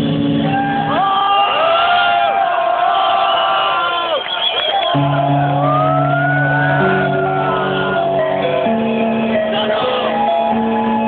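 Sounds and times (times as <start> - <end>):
crowd shouting and whooping: 0.4 - 11.0
electronic dance music: 3.7 - 11.0.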